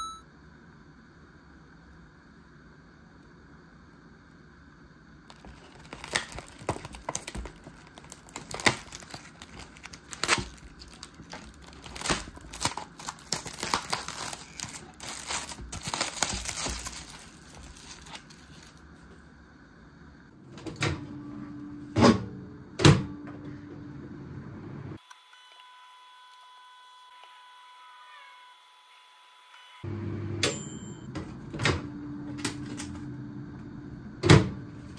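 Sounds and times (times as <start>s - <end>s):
low steady hum: 0.0s - 25.0s, 29.9s - 34.9s
plastic film crinkling and tearing: 5.3s - 18.8s.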